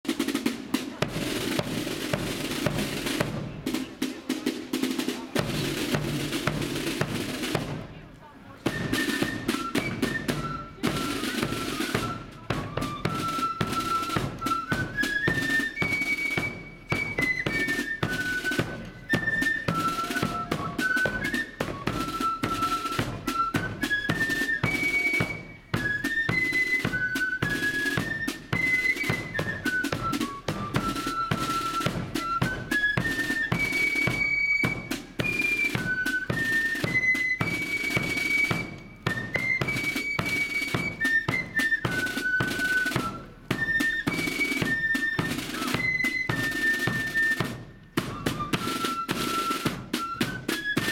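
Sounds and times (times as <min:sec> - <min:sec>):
snare drumming: 0:00.0 - 0:50.9
flutes playing melody: 0:00.1 - 0:50.9.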